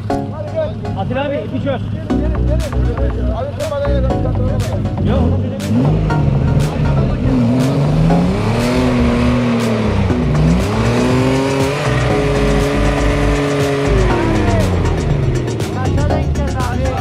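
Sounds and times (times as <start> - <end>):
background music with beat: 0.0 - 17.0
off-road engine revving hard: 5.0 - 15.8.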